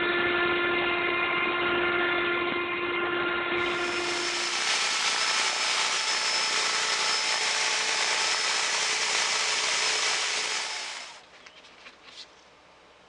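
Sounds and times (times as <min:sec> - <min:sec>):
leaf blower running: 0:03.6 - 0:11.2.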